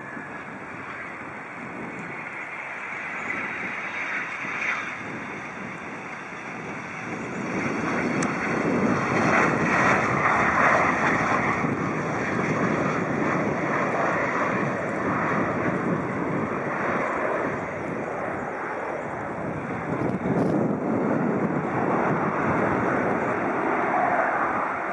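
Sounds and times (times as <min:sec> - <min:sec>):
jet engines rushing: 0:00.0 - 0:24.9.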